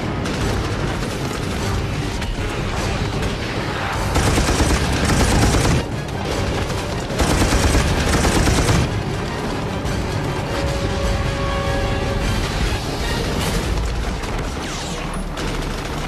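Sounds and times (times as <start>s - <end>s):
machine-gun fire bursts: 0.0s - 3.3s, 4.0s - 9.1s.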